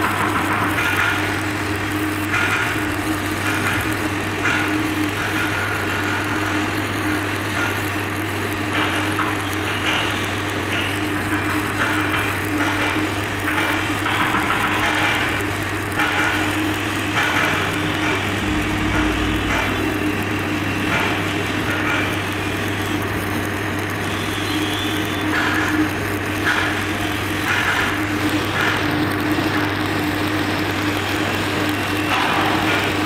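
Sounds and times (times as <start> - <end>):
welding arc crackling: 0.0 - 33.0
low hum: 17.5 - 21.9.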